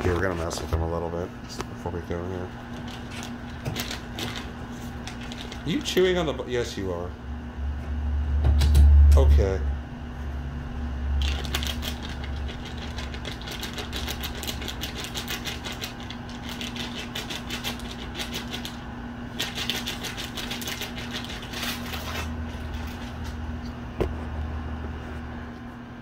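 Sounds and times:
steady low hum: 0.0 - 26.0
rapid scratching: 11.2 - 23.1.

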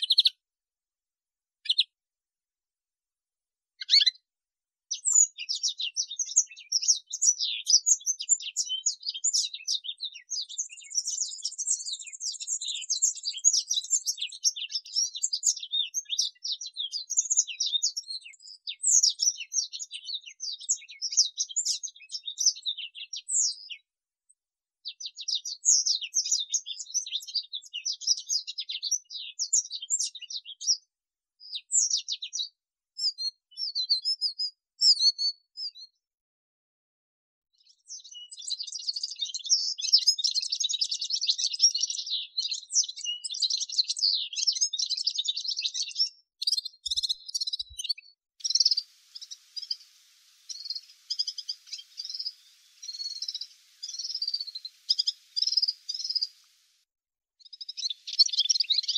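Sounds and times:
canary singing: 0.0 - 0.4, 1.6 - 1.9, 3.8 - 4.2, 45.3 - 56.7, 57.4 - 58.9.

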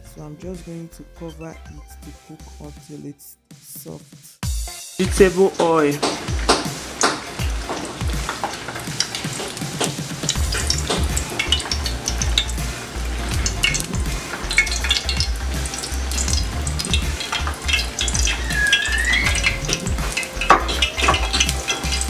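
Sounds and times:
oil crackling and spitting: 4.4 - 22.0
oil pouring from a bottle: 6.2 - 22.0.

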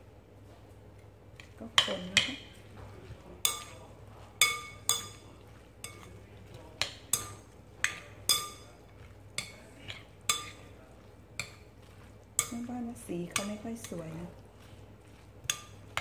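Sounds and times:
metal spoon clinking glass bowl: 3.4 - 6.1, 6.8 - 10.7, 12.4 - 12.7, 15.4 - 16.0.

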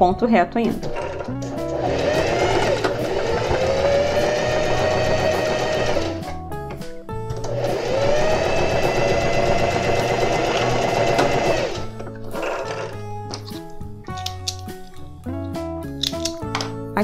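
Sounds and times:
electric sewing machine sewing: 0.8 - 6.3, 7.4 - 12.9.

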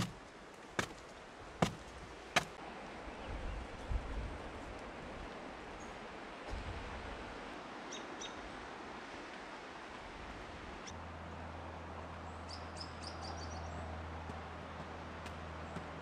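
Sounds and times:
small birds chirping: 12.4 - 13.8.

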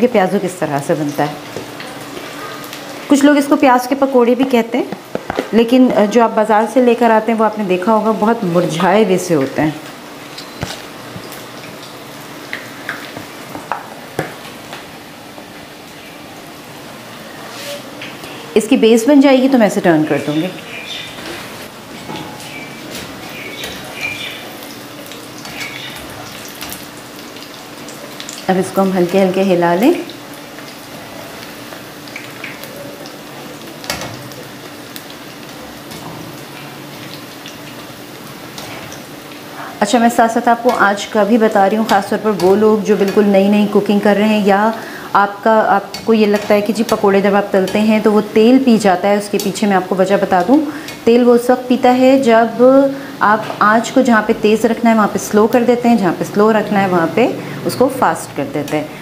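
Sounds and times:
food frying in hot oil: 0.0 - 59.0
oil popping and crackling: 0.7 - 3.6, 4.8 - 6.1, 8.6 - 17.2, 20.5 - 39.6, 40.2 - 51.2.

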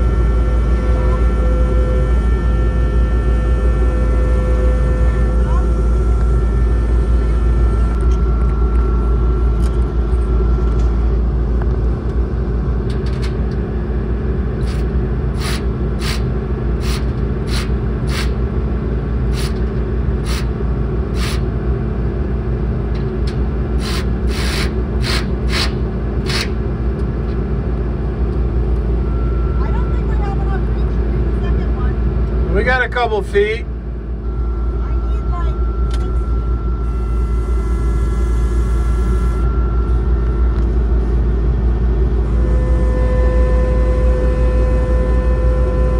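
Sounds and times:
skid steer engine idling: 0.0 - 45.9
power tool tightening bolts: 14.6 - 14.8, 15.4 - 16.2, 16.8 - 18.3, 19.3 - 20.5, 23.8 - 26.5.

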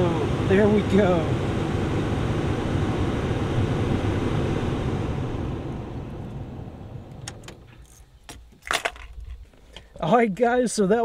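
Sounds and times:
blower fan rushing air: 0.0 - 7.9.

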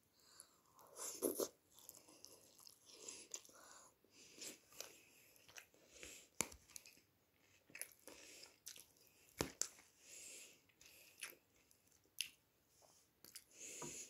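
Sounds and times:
chewing salad: 0.6 - 10.0, 10.7 - 12.4, 13.2 - 13.6.

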